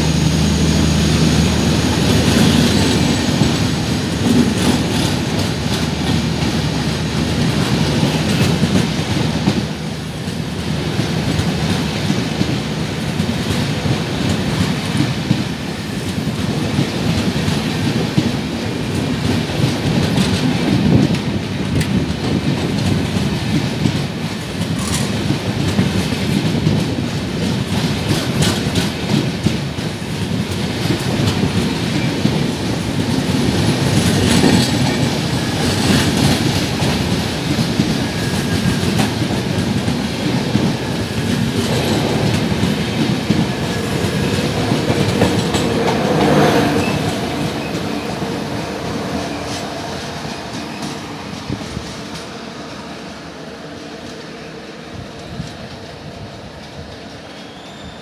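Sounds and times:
train coaches rushing past: 0.0 - 58.0
wheels clattering over rail joints: 19.6 - 52.3.

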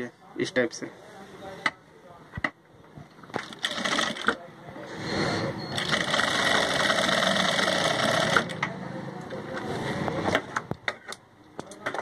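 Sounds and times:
sewing machine stitching: 3.4 - 4.4, 5.1 - 8.6.

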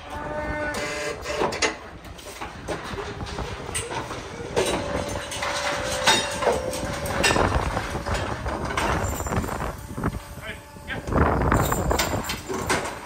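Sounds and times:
metal gates clanking: 0.0 - 13.0
metallic squeal: 3.1 - 12.4.

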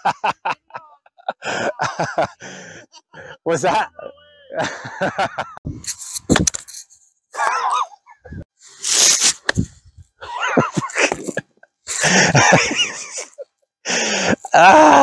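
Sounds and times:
man laughing: 0.0 - 5.6, 10.2 - 13.5, 14.2 - 15.0
man's wordless exclamations: 3.2 - 4.6, 14.5 - 15.0.

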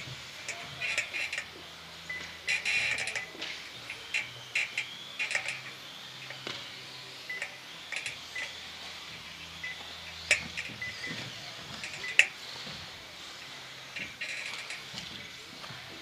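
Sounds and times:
toy cars clacking on ramps: 0.0 - 1.5, 2.1 - 6.7, 10.2 - 12.4, 13.9 - 16.0
faint electric motor whine: 0.0 - 16.0.

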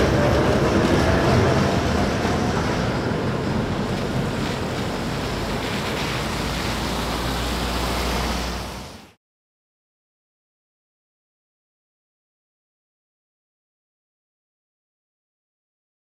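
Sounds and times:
traffic hiss on wet street: 0.0 - 9.2
tram passing: 0.0 - 9.2
van engine hum: 0.0 - 9.2.

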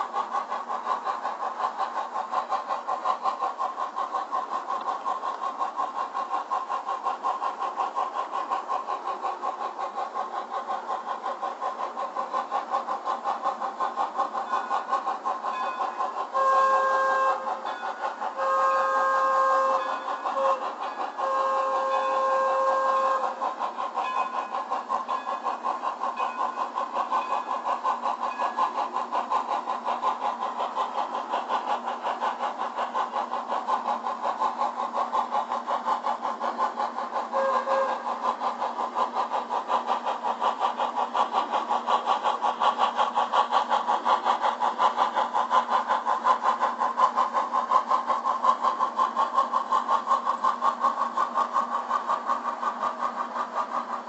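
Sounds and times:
model steam locomotive chuffing: 0.0 - 54.0
locomotive whistle: 16.3 - 17.5, 18.4 - 23.3, 37.3 - 38.1.

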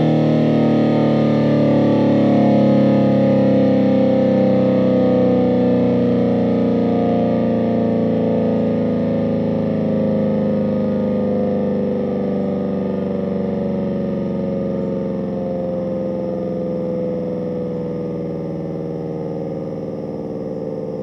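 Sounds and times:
warning siren falling in pitch: 0.0 - 21.0.

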